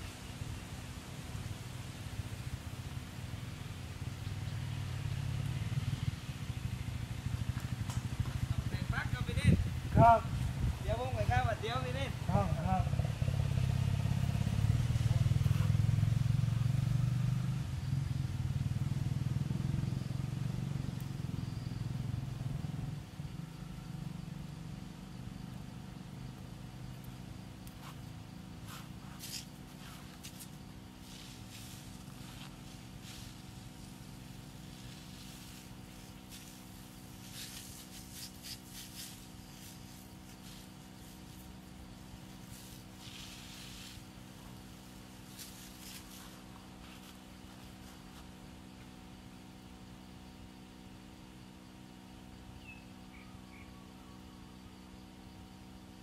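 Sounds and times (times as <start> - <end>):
garden hose spraying water: 0.0 - 17.6, 26.2 - 49.4.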